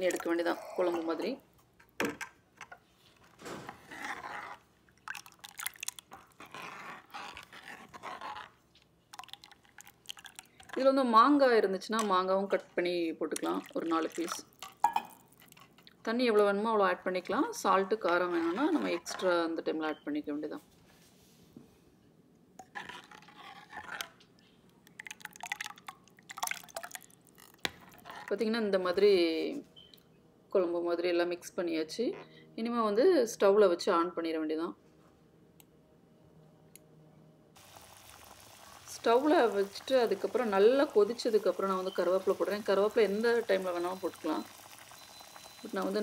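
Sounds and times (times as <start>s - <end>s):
ladle sloshing liquid in pan: 3.7s - 8.5s, 9.1s - 10.8s
ladle sloshing watery gravy: 3.7s - 10.8s, 13.3s - 15.8s, 24.8s - 28.3s, 37.6s - 46.0s.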